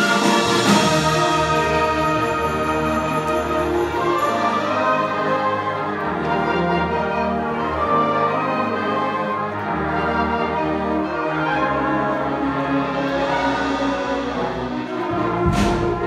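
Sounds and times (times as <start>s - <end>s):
concert band playing chords: 12.8s - 16.0s.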